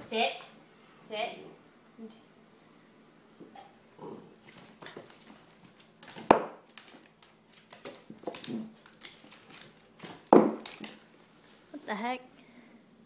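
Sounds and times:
puppy scuffling with rope toy: 0:04.4 - 0:11.7.

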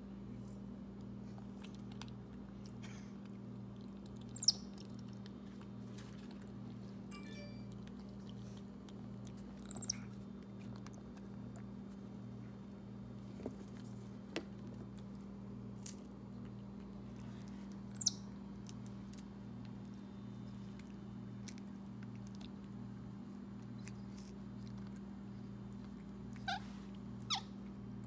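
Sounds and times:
faint eating clicks: 0:01.0 - 0:06.9, 0:07.8 - 0:12.8, 0:16.2 - 0:27.9
monkey high falling squeak: 0:09.6 - 0:09.9.

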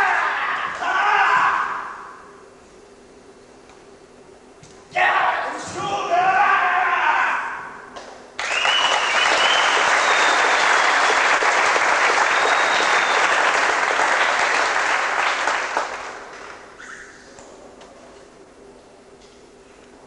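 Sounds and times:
audience applauding: 0:08.4 - 0:16.7.

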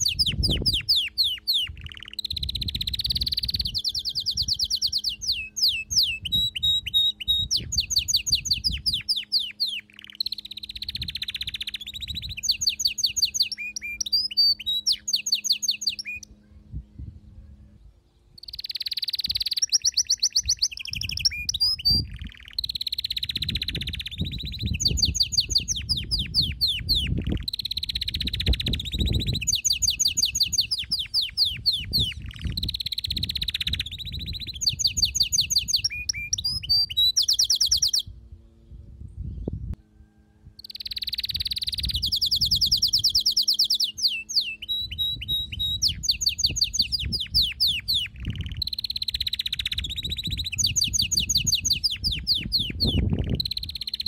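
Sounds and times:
canary singing trills: 0:00.0 - 0:16.7, 0:18.2 - 0:38.6, 0:40.6 - 0:54.0.

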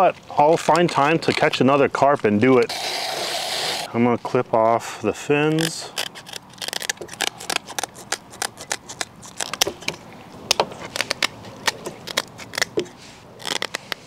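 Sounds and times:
shears snipping fins: 0:05.5 - 0:14.0.

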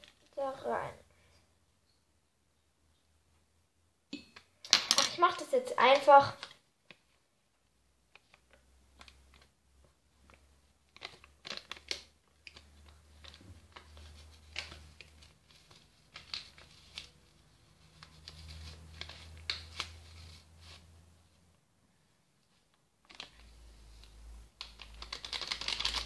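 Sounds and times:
foil sachet crinkling: 0:24.7 - 0:26.0.

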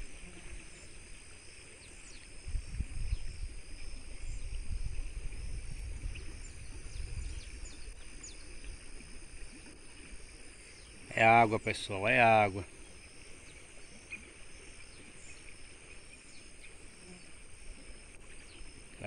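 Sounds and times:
insect chorus: 0:00.0 - 0:19.0
wind rumble on microphone: 0:01.9 - 0:11.1.

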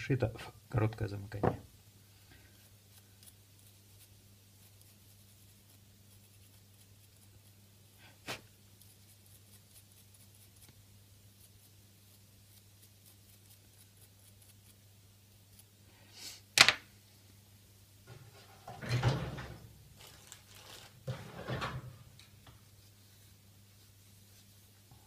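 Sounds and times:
tissue rubbing a small motor: 0:20.0 - 0:21.0.

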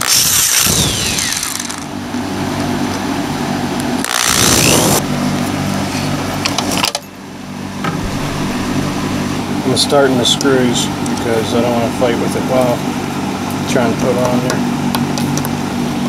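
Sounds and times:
electric drill boring through wire: 0:00.0 - 0:01.9, 0:04.0 - 0:05.0
steady low hum: 0:07.3 - 0:13.1.

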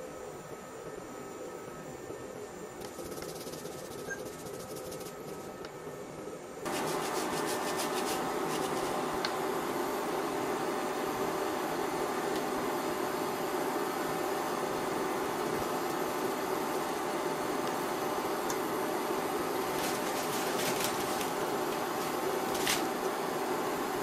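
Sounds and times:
broth hissing in wok: 0:06.6 - 0:24.0.

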